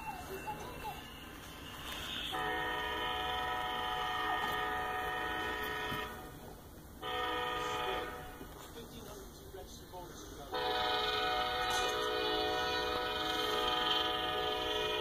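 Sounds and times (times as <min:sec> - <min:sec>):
low rumble of train: 0:00.0 - 0:15.0
locomotive air horn blasts: 0:02.2 - 0:06.4, 0:07.0 - 0:08.5, 0:10.5 - 0:15.0.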